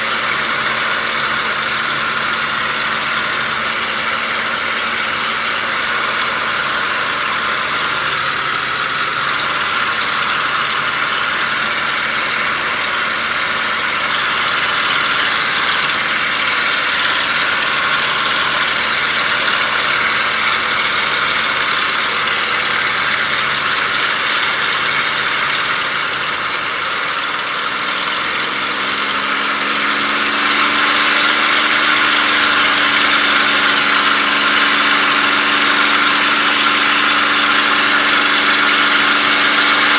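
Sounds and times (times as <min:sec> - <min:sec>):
piston aircraft engine drone: 0:00.0 - 0:39.9.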